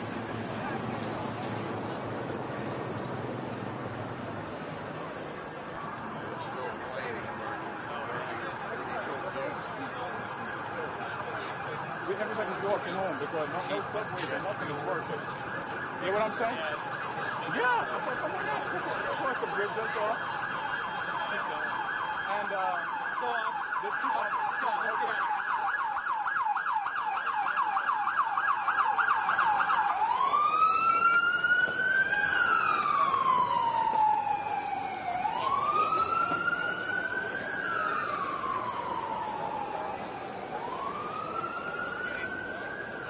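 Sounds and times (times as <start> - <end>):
emergency vehicle siren: 0.0 - 43.0.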